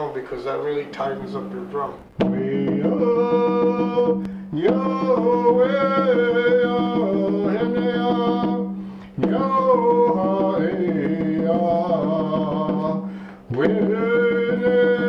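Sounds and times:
drum beating: 1.2 - 15.0
man singing chant: 1.8 - 15.0.

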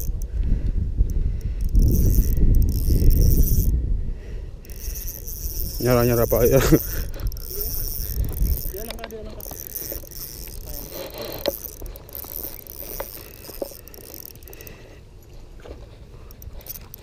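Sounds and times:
fishing reel gears turning: 0.0 - 0.4, 1.1 - 3.8, 4.6 - 15.4, 16.3 - 17.0
sharp clicks: 1.1 - 3.7, 4.7 - 14.8, 16.3 - 17.0.

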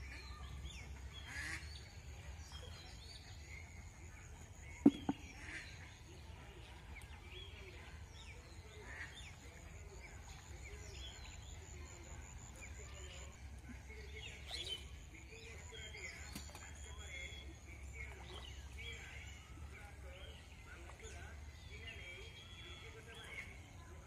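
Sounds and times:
birds chirping: 0.0 - 24.0.

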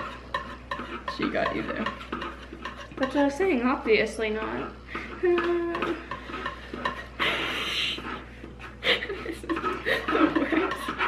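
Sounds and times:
paintbrush scraping on canvas: 0.0 - 3.3, 5.9 - 11.0.

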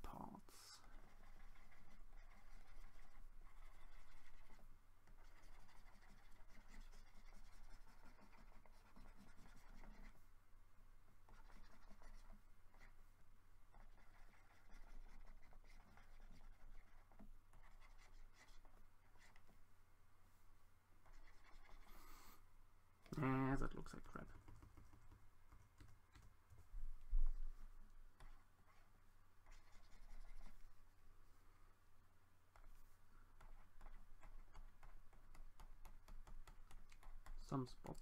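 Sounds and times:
stylus scratching on tablet: 0.5 - 10.3, 11.2 - 19.6, 21.0 - 22.4, 23.1 - 30.8, 32.5 - 38.0.

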